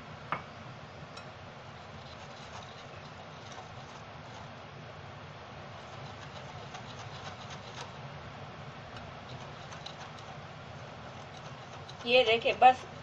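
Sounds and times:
whisk swishing batter in bowl: 0:05.8 - 0:08.0, 0:08.9 - 0:13.0.

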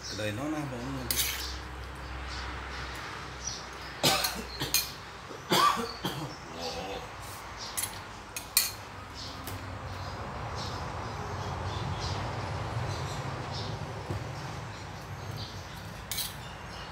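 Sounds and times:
man coughing: 0:04.0 - 0:04.9, 0:05.5 - 0:07.0.

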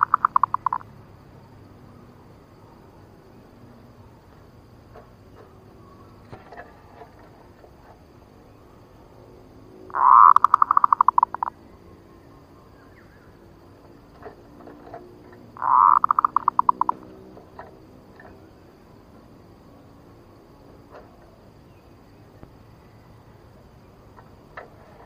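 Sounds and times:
dove cooing: 0:00.0 - 0:00.8, 0:09.9 - 0:11.6, 0:14.2 - 0:17.1.

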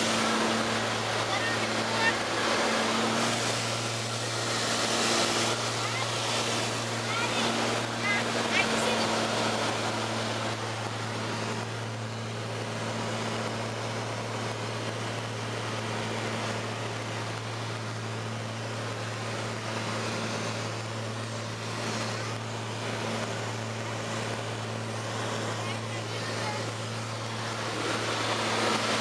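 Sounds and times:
airliner engine drone: 0:00.0 - 0:29.0
rush of airflow: 0:00.0 - 0:29.0.

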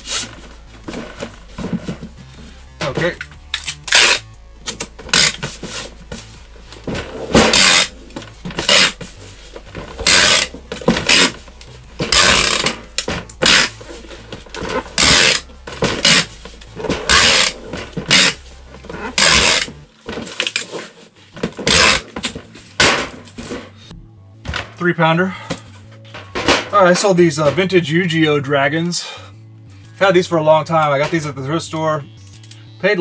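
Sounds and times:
packing tape pulled from tape gun: 0:03.5 - 0:06.0, 0:07.3 - 0:07.9, 0:08.5 - 0:09.0, 0:09.8 - 0:11.4, 0:12.0 - 0:14.0, 0:14.6 - 0:16.3, 0:17.1 - 0:18.4, 0:19.1 - 0:19.8, 0:21.6 - 0:22.4.

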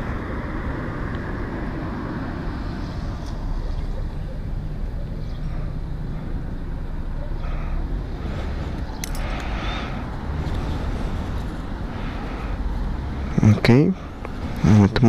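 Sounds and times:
road traffic rumble: 0:00.0 - 0:15.0
sharp clicks: 0:08.8 - 0:09.5.

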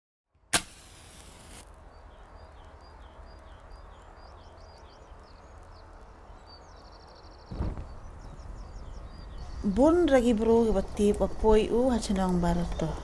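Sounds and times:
match striking and flaring: 0:00.5 - 0:01.7
bird chirping: 0:01.8 - 0:13.0.

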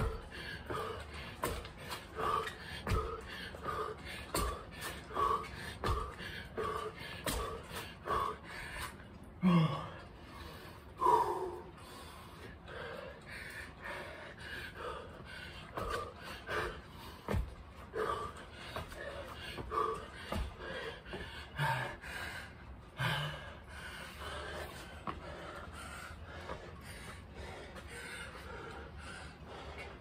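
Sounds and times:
feet landing thuds: 0:00.0 - 0:07.7, 0:15.8 - 0:21.4
man breathing hard: 0:00.0 - 0:30.0.

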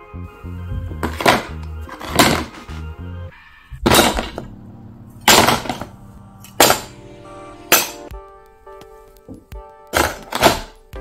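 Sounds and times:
soft background music: 0:00.0 - 0:11.0
metal parts clattering into plastic tub: 0:01.0 - 0:02.8, 0:03.9 - 0:04.5, 0:05.3 - 0:05.9, 0:06.6 - 0:06.9, 0:10.0 - 0:10.8.

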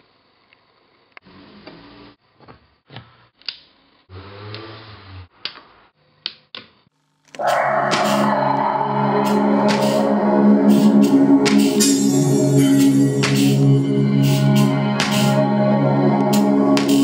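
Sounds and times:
loud music: 0:07.4 - 0:17.0.

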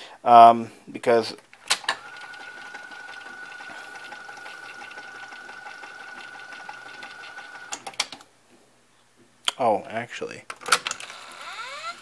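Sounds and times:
tape machine motor whine: 0:01.9 - 0:07.8.

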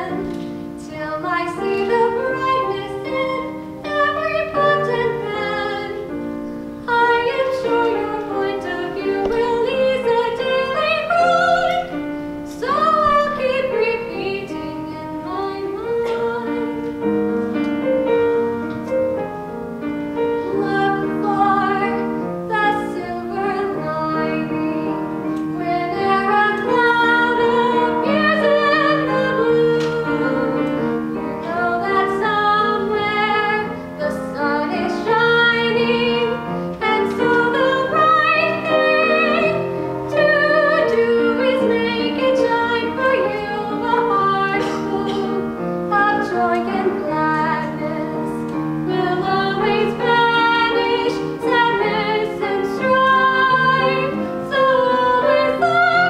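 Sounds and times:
woman singing: 0:00.0 - 0:17.0, 0:20.4 - 0:56.0
piano accompaniment: 0:00.0 - 0:56.0.

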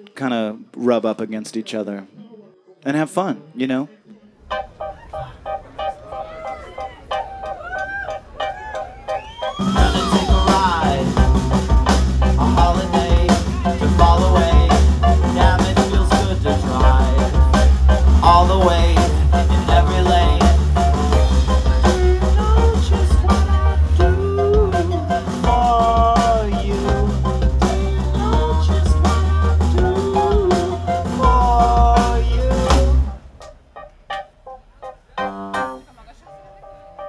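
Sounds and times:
drum kit beat: 0:04.5 - 0:34.5
electric guitar: 0:04.5 - 0:37.0
indie pop band playing live: 0:04.5 - 0:37.0
bass guitar: 0:09.2 - 0:33.4
person singing: 0:09.6 - 0:33.2.

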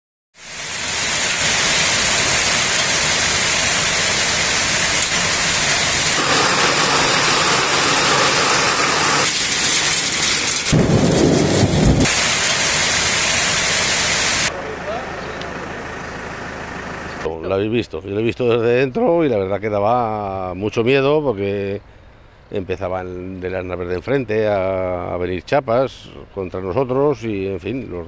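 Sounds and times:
torrential rain and hail: 0:00.4 - 0:14.5
deep rumble of thunder: 0:10.7 - 0:12.2.

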